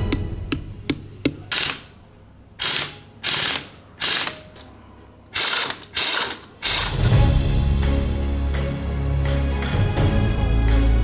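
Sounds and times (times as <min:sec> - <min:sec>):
music: 0:00.0 - 0:01.3, 0:06.5 - 0:11.0
pneumatic impact wrench rattling: 0:01.5 - 0:02.0, 0:02.6 - 0:04.7, 0:05.4 - 0:07.2.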